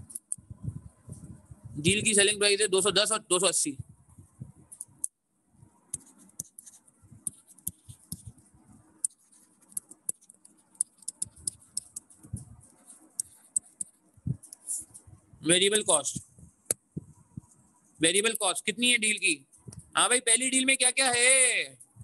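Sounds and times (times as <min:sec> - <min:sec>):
stylus tapping on pen tablet: 0:05.9 - 0:08.4, 0:09.0 - 0:12.5.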